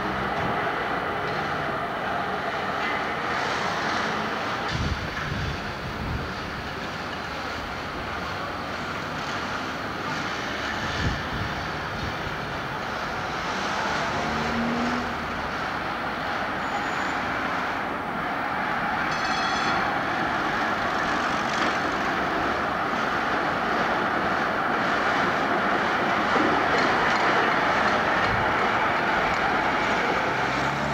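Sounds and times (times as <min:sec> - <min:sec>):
street traffic: 0:00.0 - 0:30.9
trams running on tracks: 0:00.0 - 0:30.9
brief high ring: 0:19.1 - 0:19.9.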